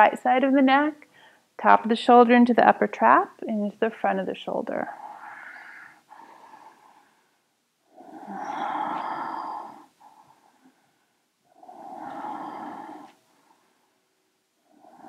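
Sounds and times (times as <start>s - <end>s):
woman breathing deeply: 5.0s - 15.0s.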